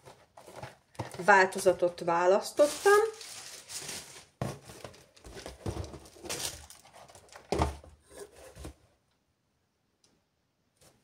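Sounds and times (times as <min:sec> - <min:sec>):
packaging rustling and crinkling: 0:00.0 - 0:01.8, 0:02.4 - 0:08.8.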